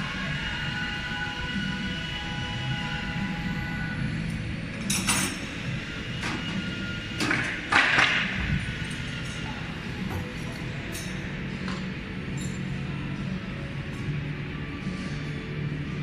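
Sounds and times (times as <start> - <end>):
machine low hum: 0.0 - 16.0.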